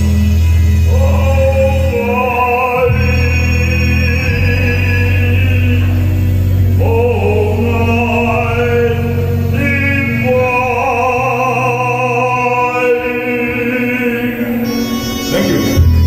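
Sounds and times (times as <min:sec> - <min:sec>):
sustained low bass notes: 0:00.0 - 0:16.0
man singing into a microphone: 0:00.8 - 0:16.0.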